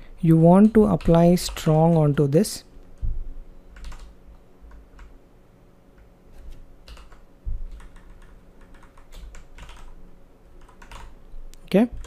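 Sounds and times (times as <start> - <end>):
computer keyboard typing: 0.4 - 2.5, 3.7 - 4.1, 4.7 - 5.1, 6.8 - 10.0, 10.6 - 11.2
dull low thump: 3.0 - 3.4.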